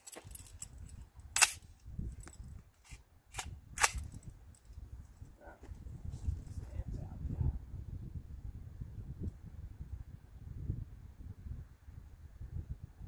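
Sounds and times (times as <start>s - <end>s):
rifle shots: 1.4s - 1.6s, 3.3s - 4.0s.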